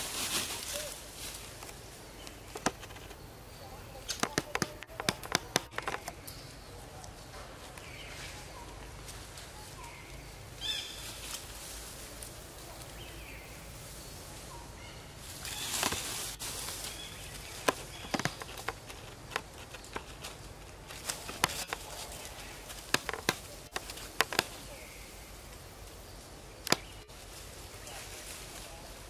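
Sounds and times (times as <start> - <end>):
footsteps on dry leaves: 0.0 - 3.2, 10.6 - 14.6, 15.2 - 25.2, 26.1 - 29.0
rustling through foliage: 0.0 - 29.0.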